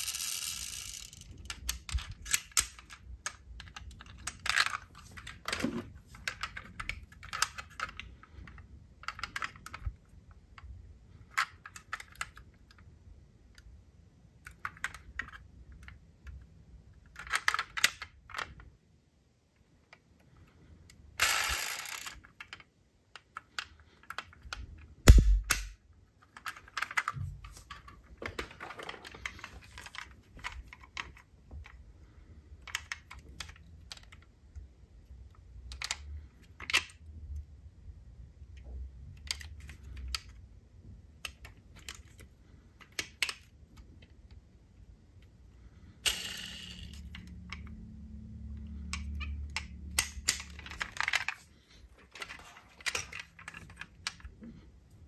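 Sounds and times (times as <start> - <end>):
metal and plastic clicks: 0.0 - 12.9, 14.4 - 18.7, 20.9 - 31.8, 32.6 - 37.5, 41.2 - 44.4, 48.5 - 54.6.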